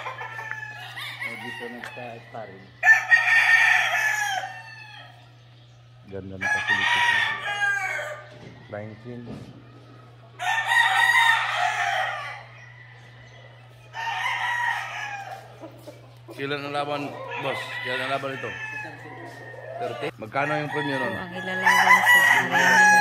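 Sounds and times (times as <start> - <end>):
roosters crowing: 0.0 - 23.0.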